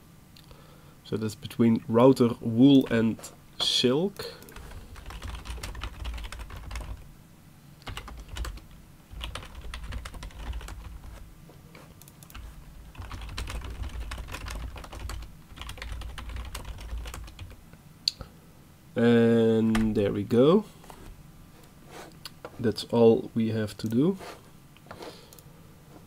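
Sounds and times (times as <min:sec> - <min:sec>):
typing on computer keyboard: 0:04.4 - 0:07.0, 0:07.8 - 0:11.2, 0:12.0 - 0:17.6.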